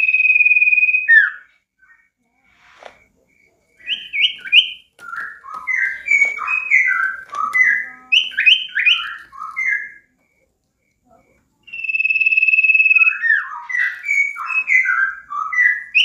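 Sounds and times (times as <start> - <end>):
bird singing whistled notes: 0.0 - 2.1, 3.8 - 10.1, 11.6 - 16.0.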